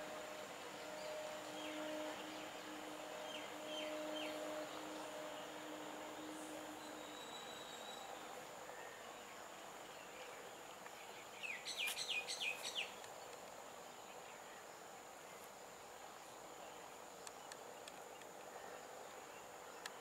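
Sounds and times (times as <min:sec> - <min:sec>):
bird chirping: 0:06.2 - 0:14.6.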